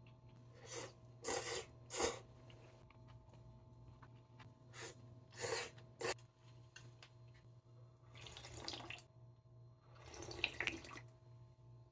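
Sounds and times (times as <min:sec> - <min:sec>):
person slurping noodles: 0:00.6 - 0:02.3, 0:04.7 - 0:06.2.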